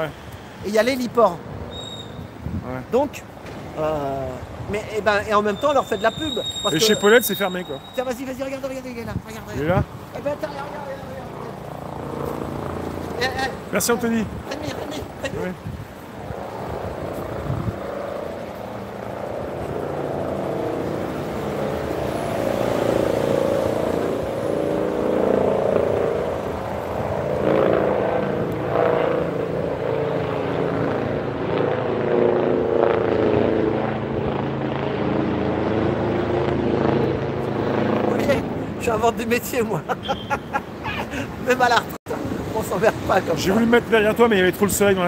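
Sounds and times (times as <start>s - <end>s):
helicopter flying overhead: 0.0s - 45.0s.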